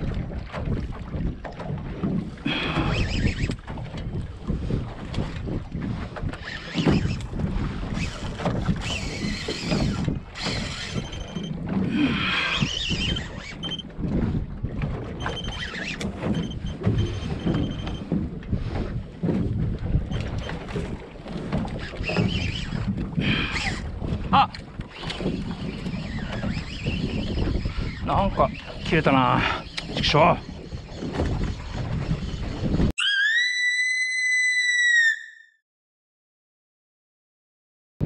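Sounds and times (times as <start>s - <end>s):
water sloshing against hull: 0.0s - 33.0s
wind buffeting microphone: 0.0s - 33.0s.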